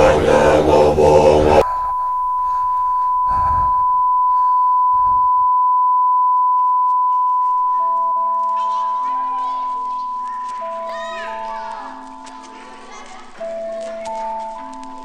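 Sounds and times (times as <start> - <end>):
chanting: 0.0 - 2.6, 7.7 - 15.0
steady electronic beep tone: 1.6 - 10.5.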